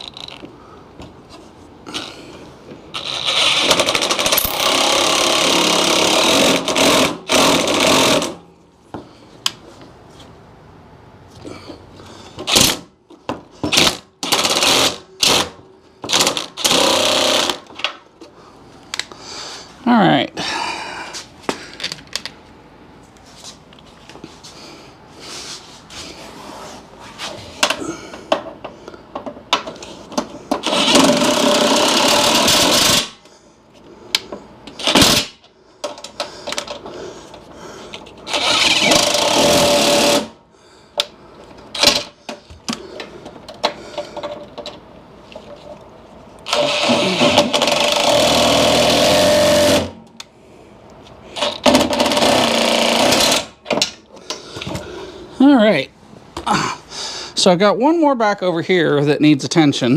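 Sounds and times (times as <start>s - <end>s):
tool handling clicks and knocks: 27.6s - 30.8s, 34.2s - 38.2s
cordless power driver: 38.3s - 40.3s, 46.5s - 49.9s.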